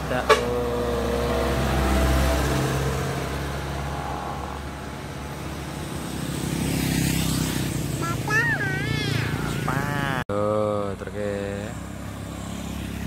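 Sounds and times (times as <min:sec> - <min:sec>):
minibus passing by: 0:00.0 - 0:10.2
road noise: 0:00.0 - 0:13.0.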